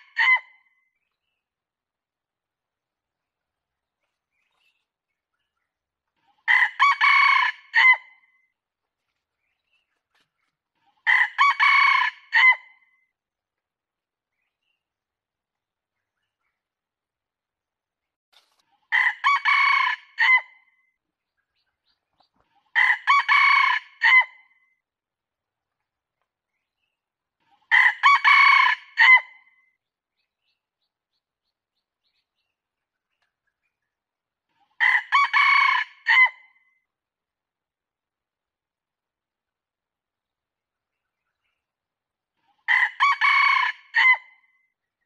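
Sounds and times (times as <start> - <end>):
rooster crowing: 42.7 - 44.2.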